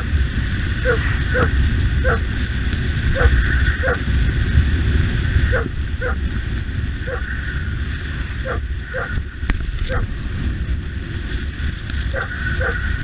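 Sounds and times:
motorcycle engine rumble: 0.0 - 13.0
wind: 0.0 - 13.0
dog yipping: 5.5 - 6.2, 8.5 - 9.2, 12.1 - 12.8.

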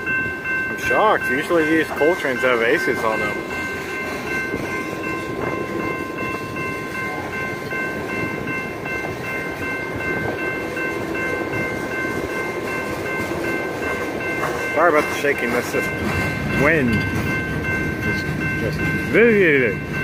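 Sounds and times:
crossing warning bell ringing: 0.0 - 20.0
freight train wheels rumbling: 0.0 - 20.0.

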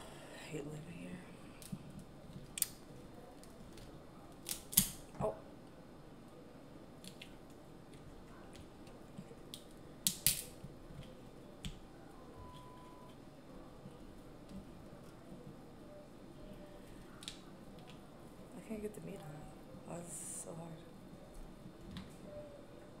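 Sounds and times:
crab shell cracking: 3.4 - 5.0, 9.5 - 11.8.

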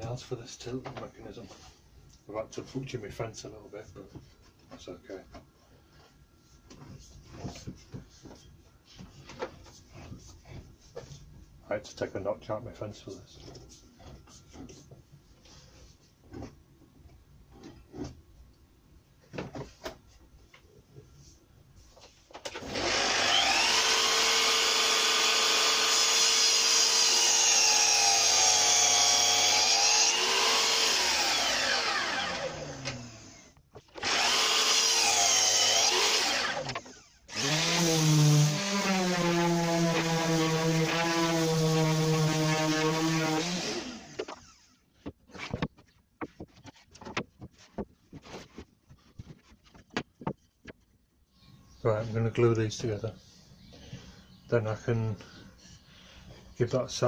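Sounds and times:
mitre saw cutting: 22.5 - 44.8
orbit sander humming: 22.6 - 44.7.

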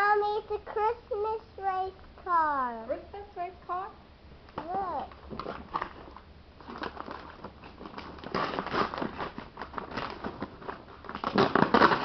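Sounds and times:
rustling and crackling: 4.5 - 12.0.

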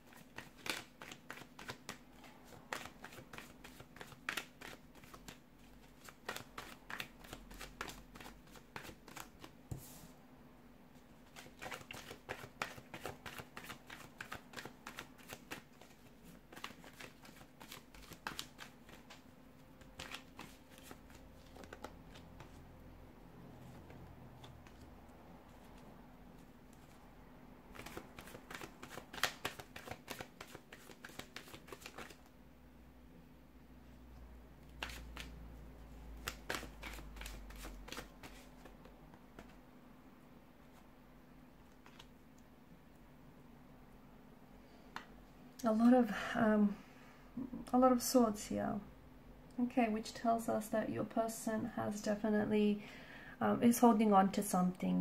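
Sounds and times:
cards being shuffled: 0.0 - 9.8, 11.2 - 22.6, 23.6 - 24.9, 27.7 - 32.3, 34.7 - 35.4, 36.0 - 39.6, 41.6 - 42.3
faint steady hum: 0.0 - 55.0.

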